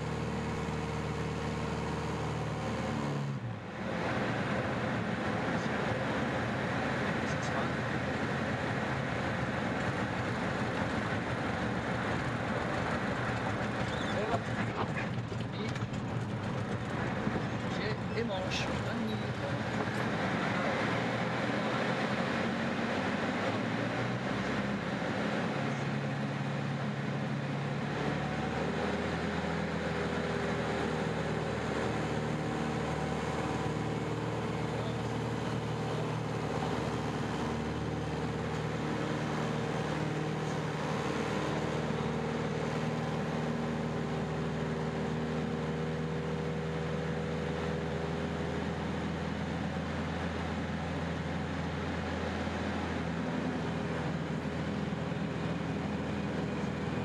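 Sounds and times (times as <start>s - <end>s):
plane engine in flight: 0.0s - 57.0s
constant rushing noise: 3.7s - 45.2s.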